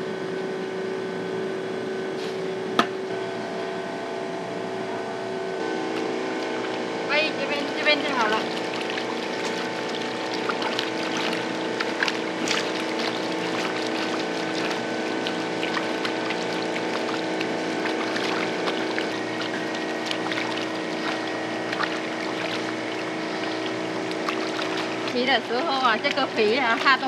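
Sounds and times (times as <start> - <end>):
steady motor hum: 0.0 - 27.0
water splashing and sloshing: 5.8 - 27.0.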